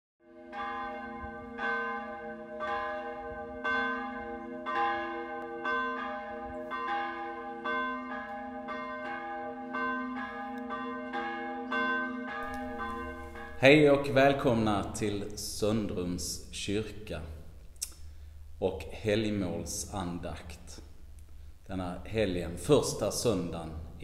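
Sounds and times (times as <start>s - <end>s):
church bell ringing: 0.3s - 16.6s.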